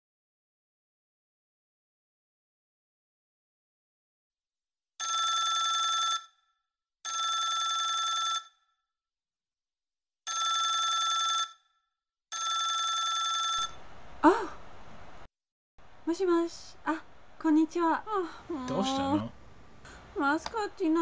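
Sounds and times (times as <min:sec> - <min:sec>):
mobile phone ringing: 0:05.0 - 0:06.4, 0:07.1 - 0:08.6, 0:10.3 - 0:11.7, 0:12.3 - 0:13.8.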